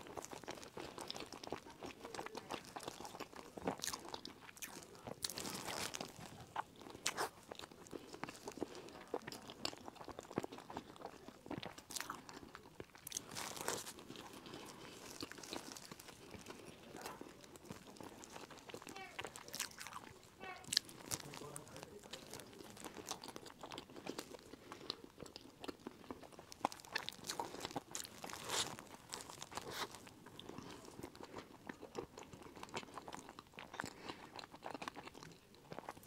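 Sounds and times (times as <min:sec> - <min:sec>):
crunchy bun being chewed: 0:00.0 - 0:36.0.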